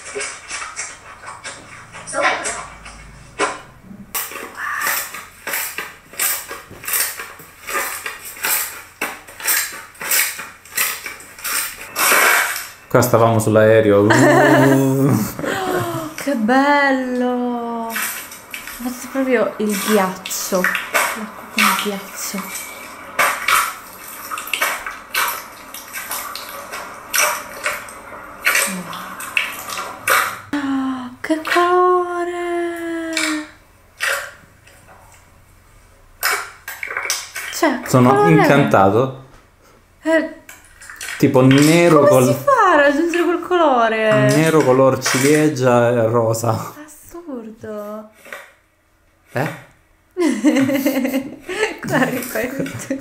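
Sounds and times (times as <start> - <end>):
slime squishing: 0.0 - 13.8.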